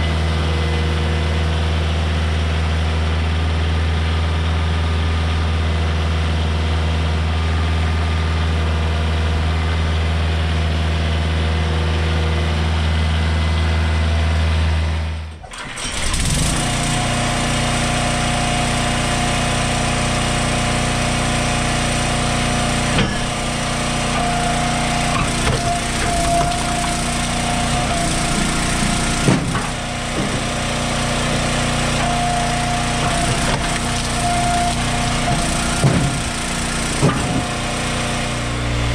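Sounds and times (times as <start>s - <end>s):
small gasoline engine running: 0.0s - 38.9s
tractor engine idling: 0.0s - 38.9s
logs splitting with sharp knocks: 24.1s - 37.9s.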